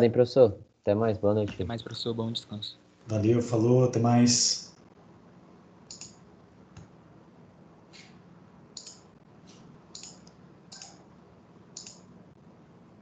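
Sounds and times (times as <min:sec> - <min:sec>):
low steady hum: 0:00.0 - 0:13.0
computer mouse clicks: 0:05.9 - 0:06.2, 0:08.8 - 0:11.0, 0:11.8 - 0:12.1.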